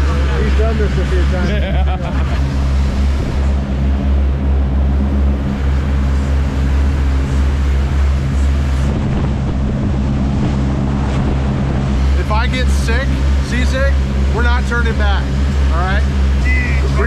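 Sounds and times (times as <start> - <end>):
boat engine humming: 0.0 - 17.0
water rushing along hull: 0.0 - 17.0.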